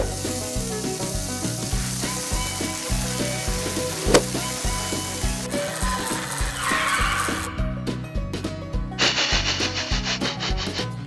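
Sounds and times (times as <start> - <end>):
steak sizzling on grill: 0.0 - 7.5
background music with beat: 0.0 - 11.0.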